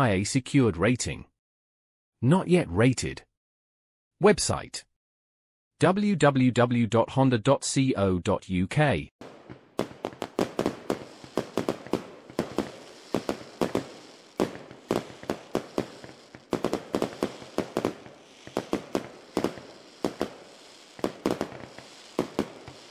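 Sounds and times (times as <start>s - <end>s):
sharp cracks or pops: 9.2s - 22.9s.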